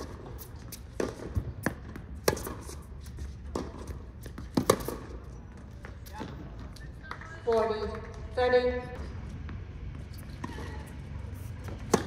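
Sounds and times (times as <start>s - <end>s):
tennis ball pocks: 3.5s - 5.2s.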